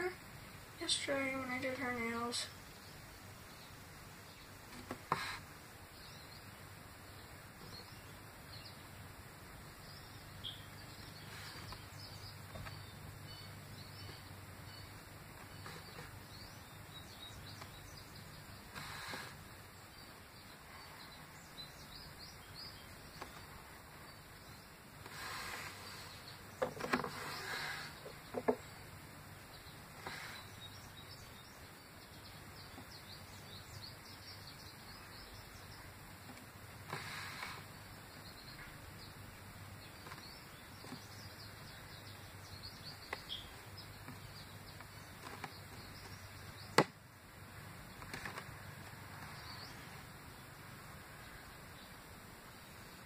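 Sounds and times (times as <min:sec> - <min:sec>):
faint taps and knocks: 0:28.0 - 0:28.7.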